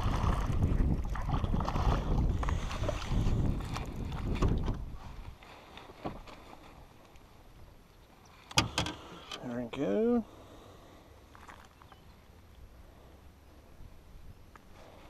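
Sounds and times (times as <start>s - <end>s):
microphone handling noise: 0.0s - 5.2s
low wind rumble: 0.0s - 5.5s, 10.2s - 15.0s.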